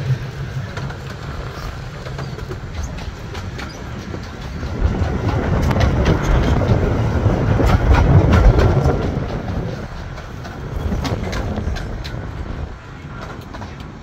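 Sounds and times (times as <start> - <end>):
train rumbling on track: 0.0 - 14.0
train wheels clattering: 0.0 - 14.0.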